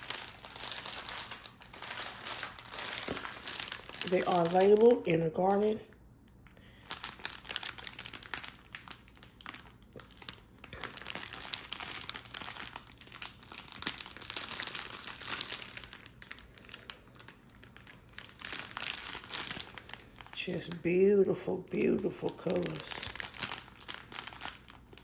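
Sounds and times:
plastic bag crinkling: 0.0s - 25.0s.

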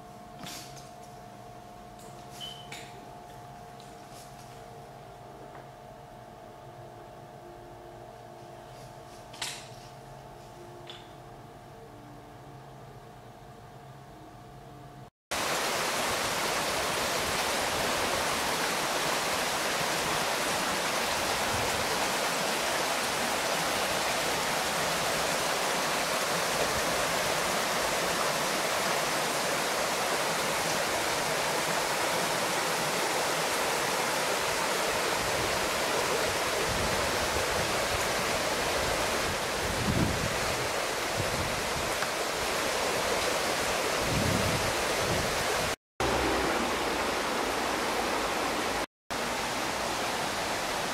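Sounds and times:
stream rushing over rocks: 15.3s - 50.9s.

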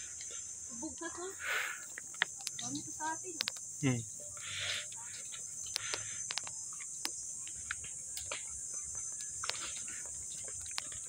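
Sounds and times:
insect chorus drone: 0.0s - 11.0s
footsteps on stone path: 4.7s - 11.0s.

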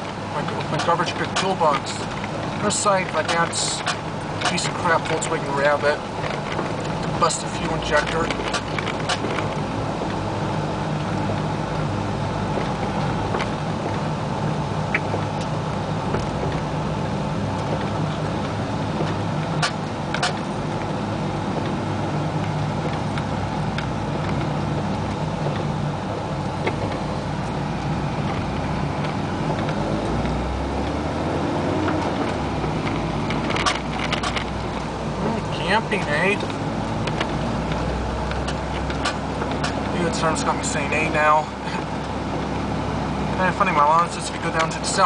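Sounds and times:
car engine hum: 0.0s - 45.0s
tyres on wet road: 0.0s - 45.0s.

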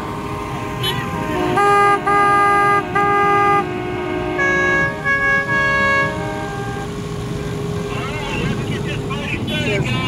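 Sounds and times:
boat horn blasts: 0.6s - 7.2s
second boat horn at different pitch: 0.8s - 7.0s.

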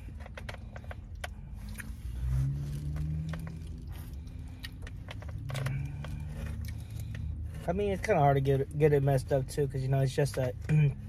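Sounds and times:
person chewing food: 0.0s - 7.6s
low steady rumble: 0.0s - 11.0s.

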